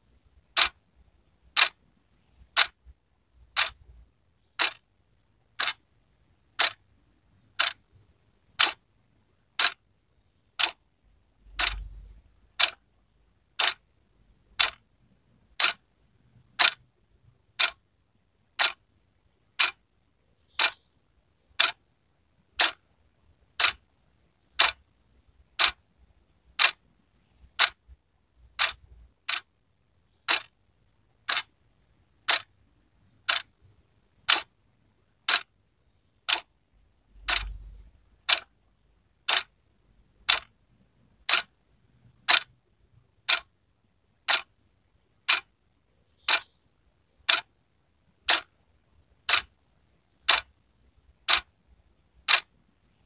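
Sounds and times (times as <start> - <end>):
wall clock ticking: 0.4 - 0.8, 1.5 - 8.9, 9.5 - 17.9, 18.5 - 18.9, 19.5 - 19.9, 20.5 - 20.9, 21.5 - 21.8, 22.4 - 25.9, 26.5 - 34.6, 35.2 - 35.6, 36.2 - 39.6, 40.2 - 43.5, 44.2 - 45.6, 46.2 - 46.6, 47.2 - 47.5, 48.1 - 51.5, 52.1 - 53.0.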